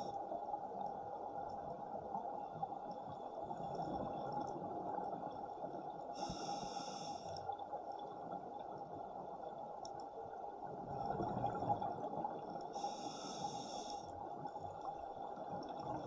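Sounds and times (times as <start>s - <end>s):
hissing breath: 6.2s - 7.4s, 12.8s - 14.1s
scuba regulator breathing underwater: 6.2s - 7.4s, 12.8s - 14.1s.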